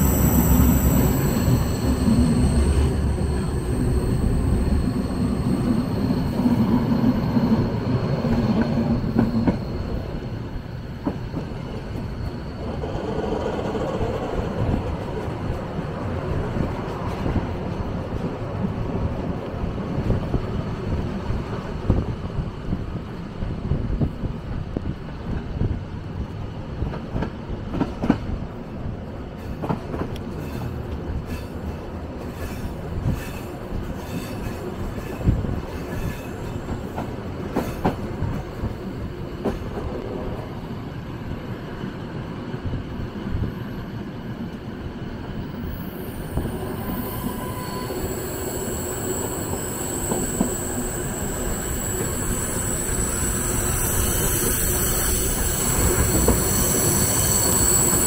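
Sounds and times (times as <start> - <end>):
high wheel squeal: 0.0 - 14.1, 45.6 - 58.0
train wheels rumbling on rails: 0.0 - 58.0.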